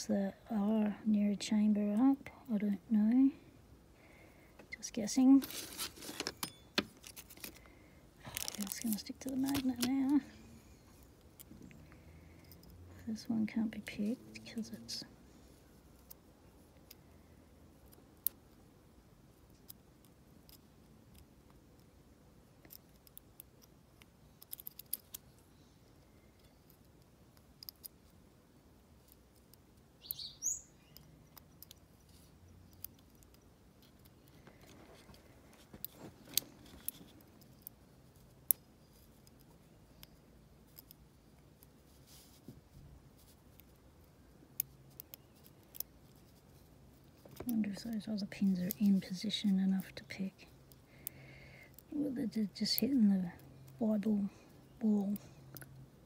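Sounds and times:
lock pick metallic clicks: 22.6s - 25.4s.

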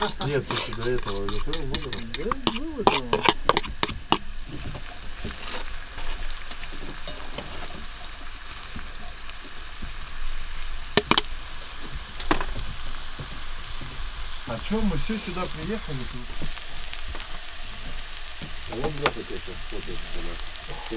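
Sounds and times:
utensil scraping pot: 0.0s - 8.0s
onion sizzling in pot: 0.0s - 20.9s.

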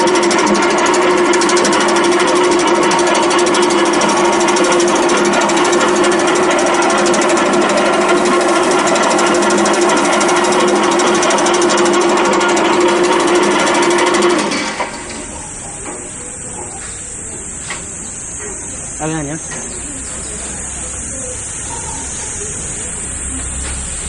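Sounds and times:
machine clattering rapidly: 0.0s - 24.0s
machine humming: 0.0s - 24.0s.

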